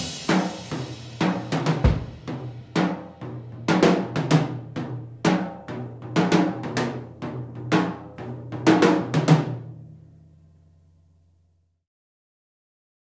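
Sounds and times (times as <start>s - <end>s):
rock band playing: 0.0s - 2.8s
drum and crash cymbal hits: 0.0s - 9.6s.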